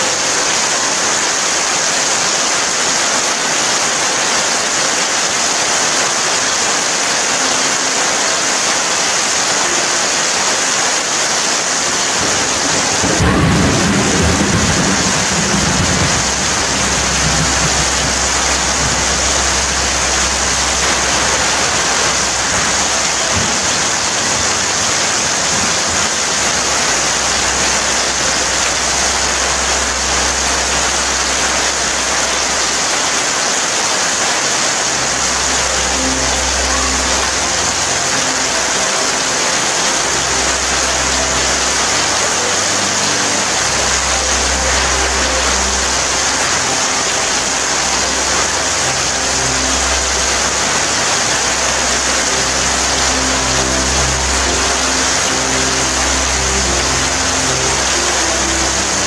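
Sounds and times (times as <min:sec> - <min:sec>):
steady rain falling: 0:00.0 - 0:59.0
thunder rumbling: 0:11.9 - 0:33.0.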